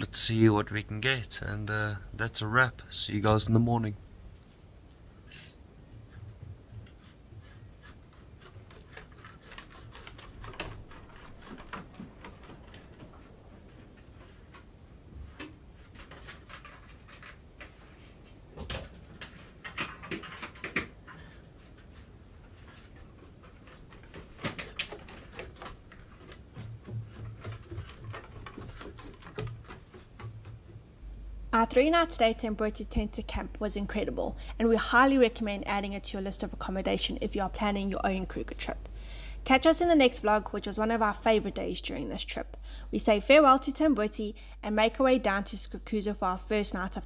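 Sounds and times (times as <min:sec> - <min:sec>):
crickets chirping: 0:00.0 - 0:45.8
rustling: 0:03.0 - 0:32.2
faint knocks: 0:06.0 - 0:31.3.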